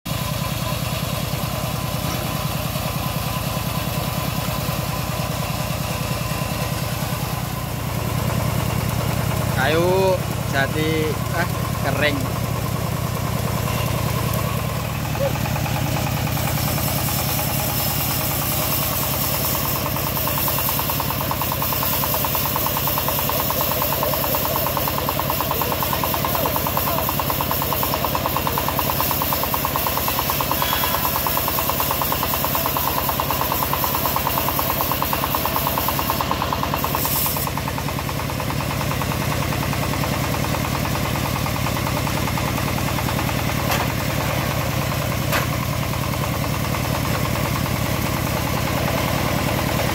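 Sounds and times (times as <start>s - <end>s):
diesel engine chugging: 0.1s - 49.9s
saw blade hissing through log: 13.1s - 38.4s.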